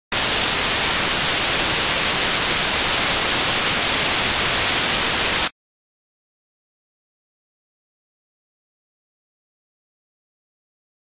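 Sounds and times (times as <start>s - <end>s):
static hiss: 0.1s - 5.5s.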